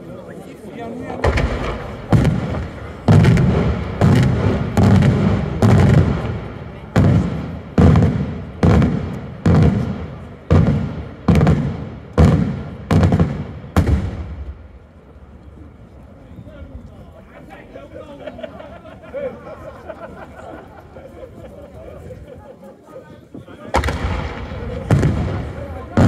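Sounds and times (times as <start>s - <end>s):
firework shells bursting: 1.2s - 14.4s.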